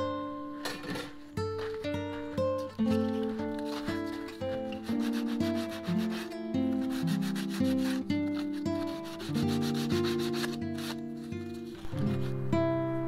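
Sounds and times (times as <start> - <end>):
acoustic guitar music: 0.0 - 13.0
sanding block rubbing wood: 2.9 - 11.0.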